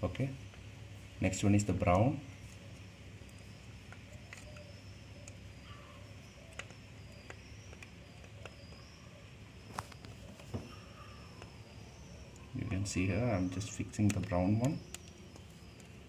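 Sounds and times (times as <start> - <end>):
low steady hum: 0.0 - 16.0
wire punch-down clicks and taps: 14.0 - 15.9.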